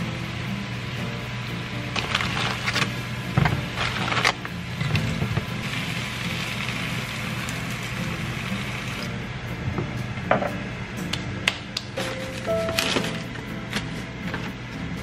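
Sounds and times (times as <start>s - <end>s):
soft background music: 0.0s - 15.0s
food sizzling in frying pan: 2.0s - 9.1s.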